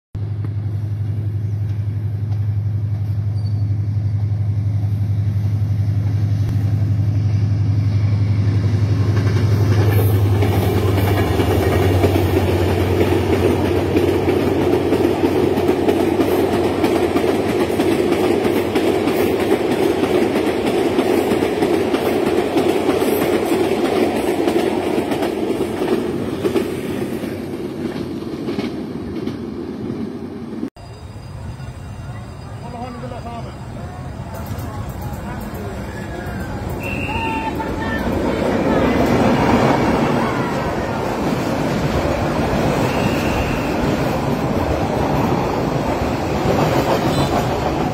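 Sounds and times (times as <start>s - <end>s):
diesel locomotive engine hum: 0.2s - 47.9s
train wheels clattering on rails: 8.6s - 30.1s, 34.3s - 47.9s.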